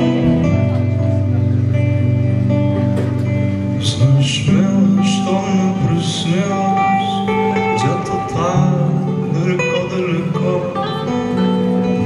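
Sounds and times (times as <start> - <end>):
man singing: 3.7 - 12.0.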